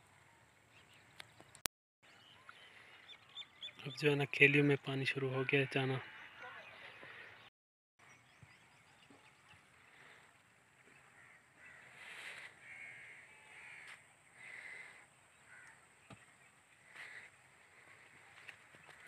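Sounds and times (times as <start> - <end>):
crows cawing: 10.8 - 15.9.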